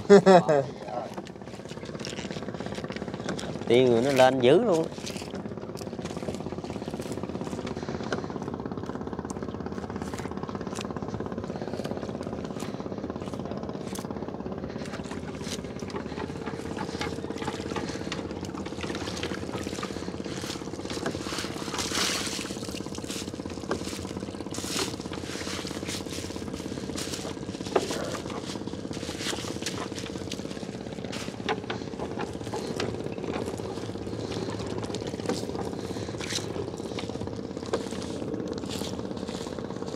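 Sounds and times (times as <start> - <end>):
small boat engine puttering: 0.0 - 39.9.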